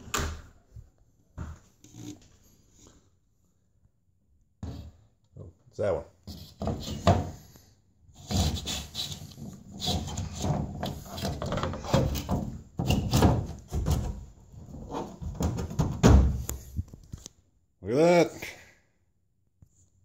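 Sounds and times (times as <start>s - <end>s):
plastic panel rubbing and creaking: 8.2s - 16.2s.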